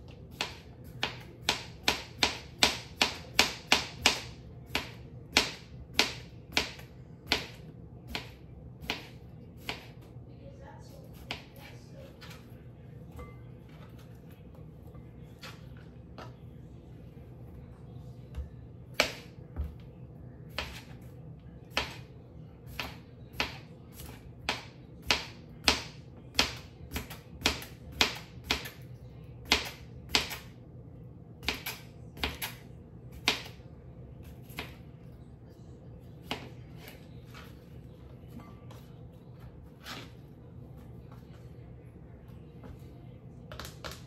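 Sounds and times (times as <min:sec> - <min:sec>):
knife chopping on cutting board: 0:00.3 - 0:10.0, 0:20.5 - 0:21.0, 0:21.7 - 0:22.1, 0:22.7 - 0:28.8, 0:29.4 - 0:30.5, 0:31.4 - 0:33.6, 0:36.2 - 0:37.6.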